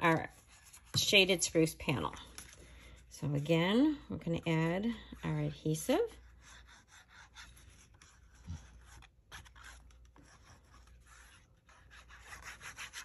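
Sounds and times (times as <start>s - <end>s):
adhesive scratching on card: 6.2s - 13.0s.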